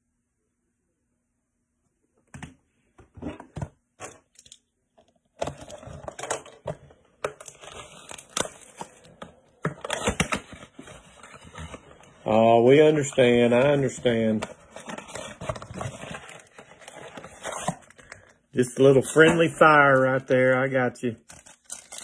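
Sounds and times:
foil wrapper crinkling and tearing: 0:19.2 - 0:22.0.

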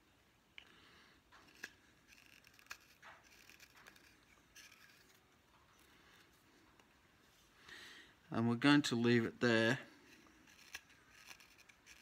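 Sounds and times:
knife scraping wood: 0:01.4 - 0:05.8, 0:09.9 - 0:12.0.

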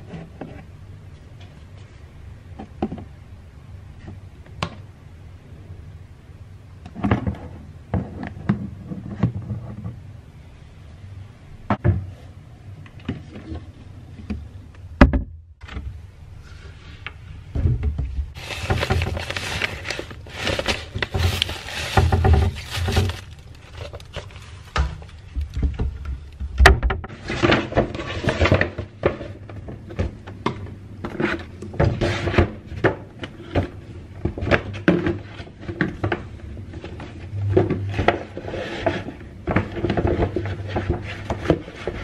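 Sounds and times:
paper and plastic bags rustling: 0:18.3 - 0:25.3.

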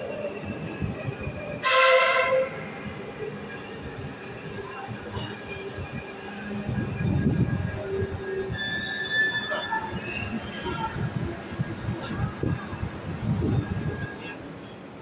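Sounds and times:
metro train rumbling and whining: 0:00.0 - 0:15.0
train horn blast: 0:01.6 - 0:02.6.

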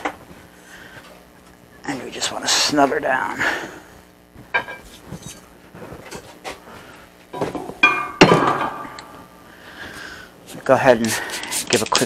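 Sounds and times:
sharp ringing metal clank: 0:07.8 - 0:09.1.

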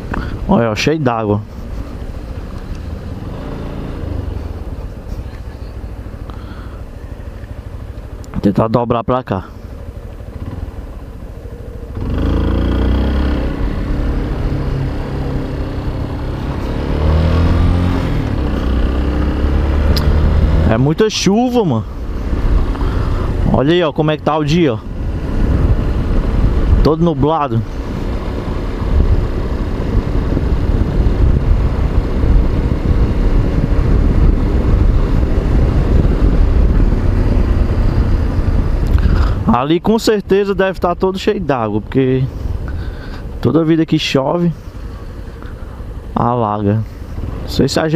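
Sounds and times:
road noise: 0:00.0 - 0:47.9
steady low rumble: 0:00.0 - 0:47.9
motorcycle engine accelerating: 0:01.6 - 0:08.4, 0:09.5 - 0:40.6
wind rumble on microphone: 0:21.9 - 0:40.0.

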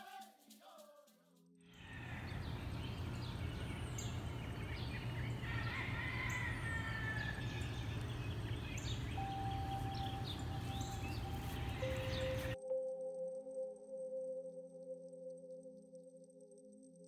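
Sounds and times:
birds chirping and calling: 0:01.8 - 0:12.6
steady low hum: 0:01.8 - 0:12.6.

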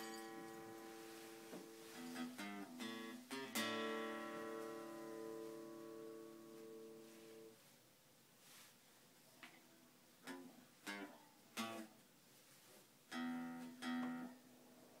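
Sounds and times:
strummed chords: 0:00.0 - 0:07.5.

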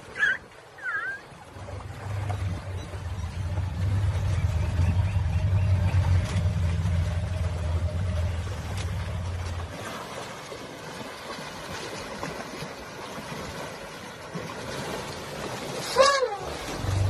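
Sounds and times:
water sloshing and splashing: 0:00.0 - 0:17.0
low hum: 0:01.5 - 0:10.8.

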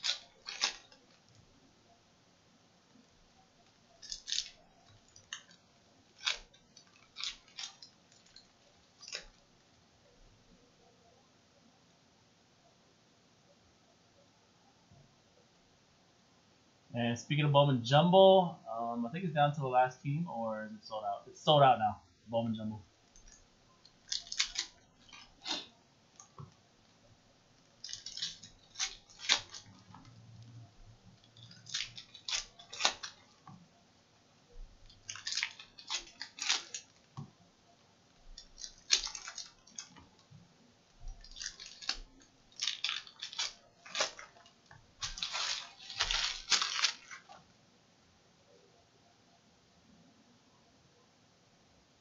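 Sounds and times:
card pack wrappers crinkling: 0:00.0 - 0:01.5, 0:03.6 - 0:09.5, 0:23.1 - 0:26.5, 0:27.6 - 0:30.5, 0:31.2 - 0:33.5, 0:34.8 - 0:37.3, 0:38.3 - 0:40.2, 0:40.9 - 0:47.4.

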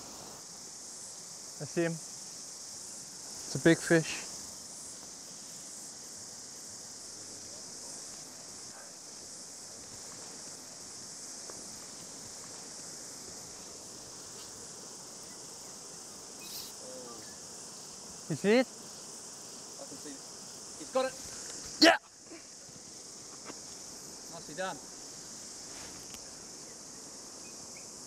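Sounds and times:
cicadas singing: 0:00.0 - 0:28.0.

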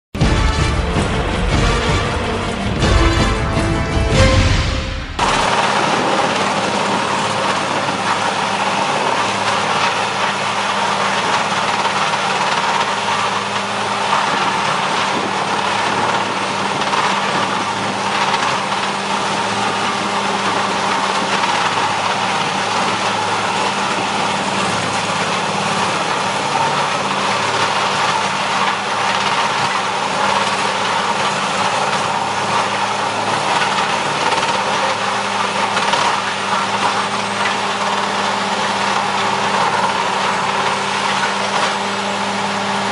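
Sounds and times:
diesel engine drone: 0:00.1 - 0:42.9
excavator running: 0:00.2 - 0:42.9
wood being ground: 0:00.2 - 0:42.9.

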